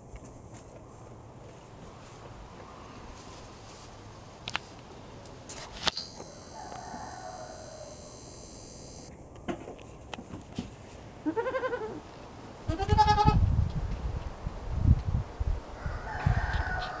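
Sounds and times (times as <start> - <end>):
goats bleating: 12.7 - 13.4.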